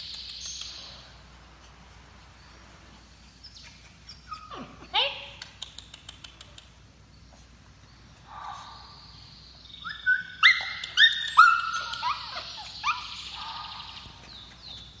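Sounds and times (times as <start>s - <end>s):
puppy whining: 3.4s - 4.9s, 9.8s - 13.3s.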